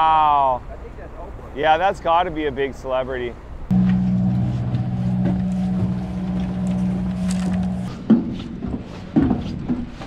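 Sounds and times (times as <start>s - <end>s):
boat engine humming: 3.4s - 8.3s.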